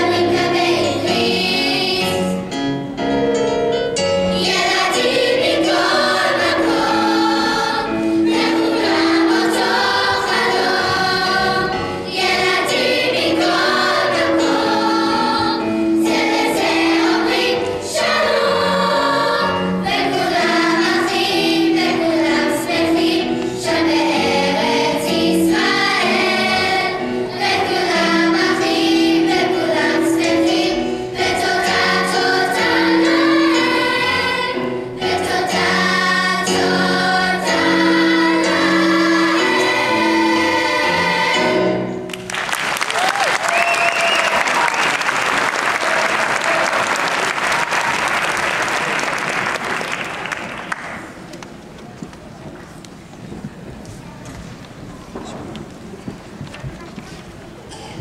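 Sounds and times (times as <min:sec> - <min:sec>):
girls choir singing: 0:00.0 - 0:02.5, 0:04.3 - 0:42.1
electric keyboard: 0:00.0 - 0:42.3.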